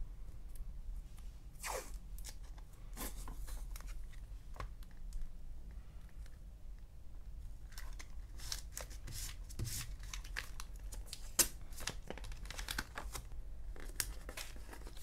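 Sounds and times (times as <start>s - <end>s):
paper and plastic crinkling: 7.6s - 15.0s.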